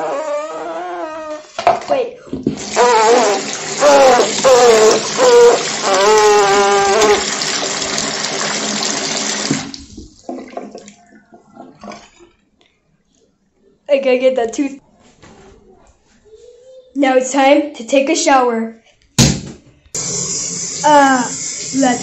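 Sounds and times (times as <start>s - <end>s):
faucet running hard: 2.5s - 9.9s, 20.0s - 22.0s
water splashing into basin: 2.5s - 12.4s.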